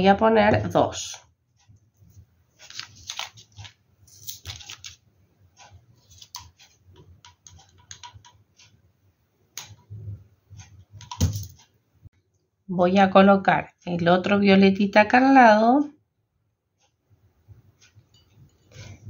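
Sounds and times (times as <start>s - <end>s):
tape rustling: 2.6s - 5.0s, 6.0s - 6.8s.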